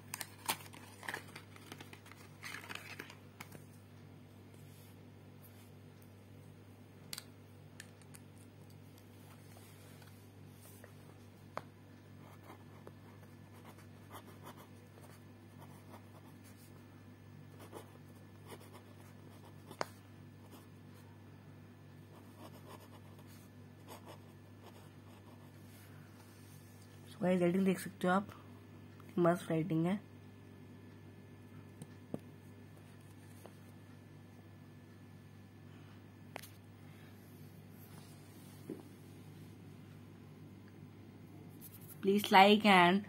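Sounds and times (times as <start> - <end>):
steady low hum: 0.0 - 43.0
pen scratching on paper: 17.6 - 20.6.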